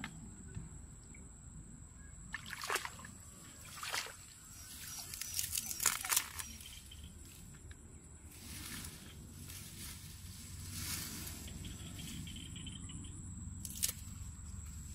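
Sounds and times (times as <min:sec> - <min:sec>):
muddy water sloshing and splashing: 0:02.3 - 0:07.0.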